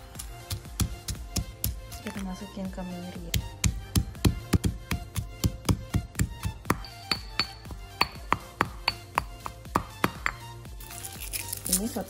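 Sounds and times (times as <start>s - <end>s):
background music: 0.0s - 12.0s
pestle pounding in mortar: 0.2s - 2.3s, 3.2s - 10.5s.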